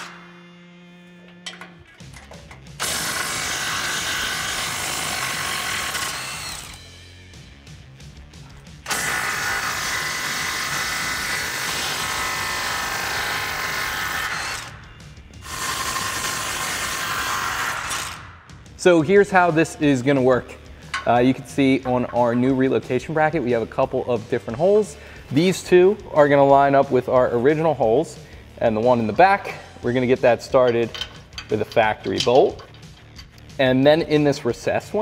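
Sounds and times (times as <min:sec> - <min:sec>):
impact wrench hammering: 0:01.3 - 0:06.8, 0:15.4 - 0:18.2.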